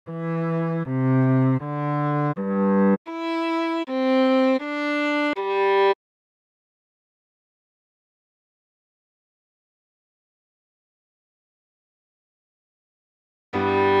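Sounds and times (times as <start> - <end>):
cello playing bowed melody: 0.1 - 6.0, 13.6 - 14.0.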